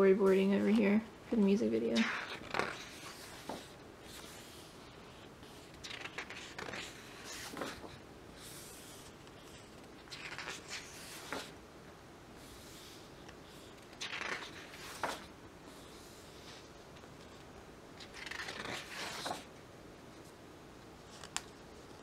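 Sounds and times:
pages turning: 2.0s - 11.6s, 13.6s - 15.3s, 17.2s - 19.5s, 21.0s - 22.0s.

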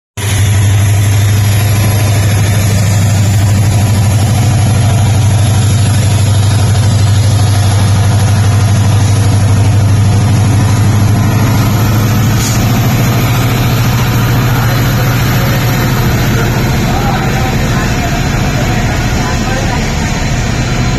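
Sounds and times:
diesel locomotive engine hum: 0.2s - 20.9s
heavy rain hissing: 0.2s - 20.9s
train coaches rolling: 0.2s - 20.9s.

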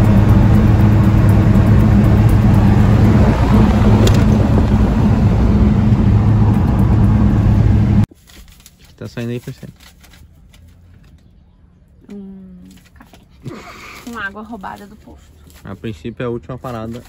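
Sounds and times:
van engine drone: 0.0s - 8.1s
road noise: 0.0s - 17.0s.

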